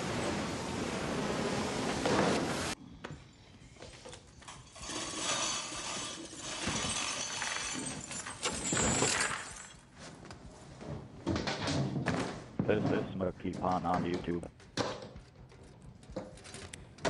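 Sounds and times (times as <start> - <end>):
metal chain rattling and clinking: 4.3 - 9.9, 15.4 - 17.0.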